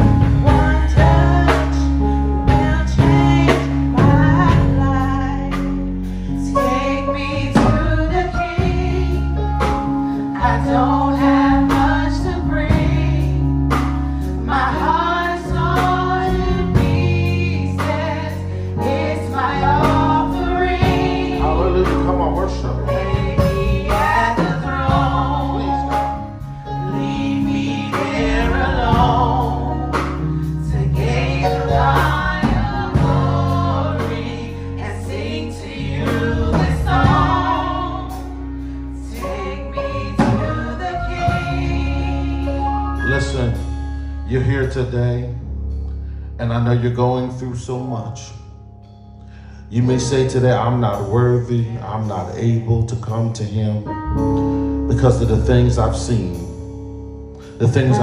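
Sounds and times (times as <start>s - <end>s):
woman singing gospel song: 0.0s - 43.1s
sustained instrumental backing: 0.0s - 58.0s.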